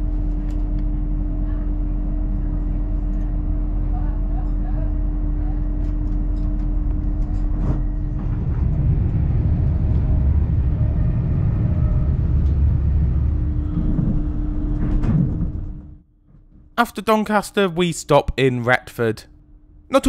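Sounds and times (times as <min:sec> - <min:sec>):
train running rumble: 0:00.0 - 0:16.0
station platform hum: 0:00.0 - 0:20.0.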